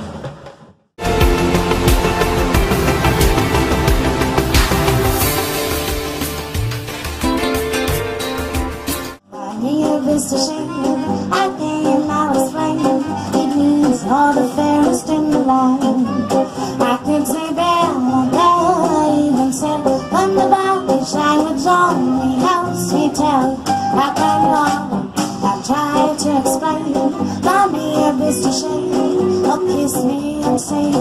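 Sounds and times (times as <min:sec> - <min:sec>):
melody over repeating accompaniment: 0:01.0 - 0:09.2.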